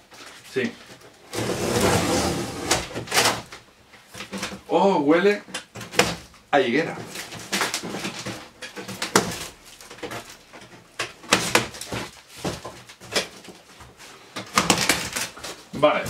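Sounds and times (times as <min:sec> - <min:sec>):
cardboard and paper rustling: 0:06.9 - 0:15.9.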